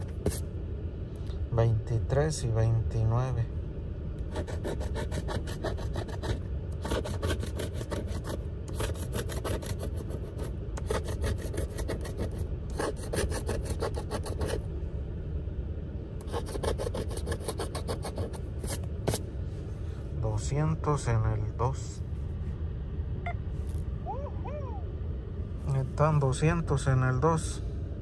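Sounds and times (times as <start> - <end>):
coin scratching lottery ticket: 4.3 - 14.6, 16.2 - 19.2.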